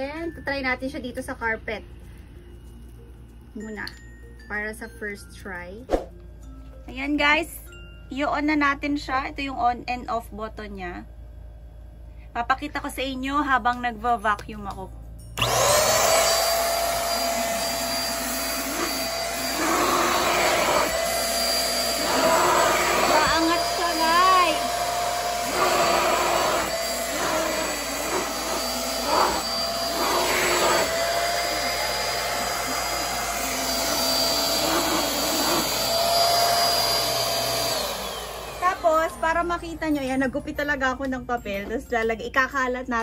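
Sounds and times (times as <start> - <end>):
vacuum cleaner motor whine: 15.4 - 39.7.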